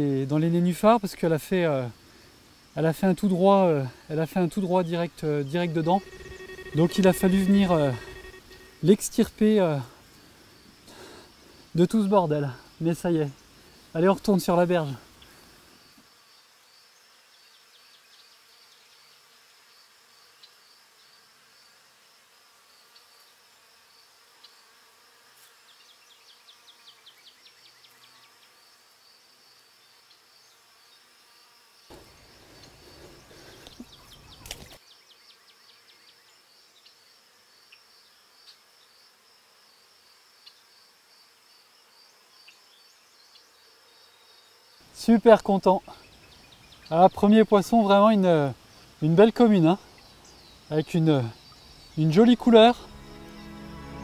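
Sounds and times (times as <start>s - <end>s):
insects trilling: 0.3s - 18.3s, 25.4s - 54.0s
loud noise: 5.7s - 9.2s.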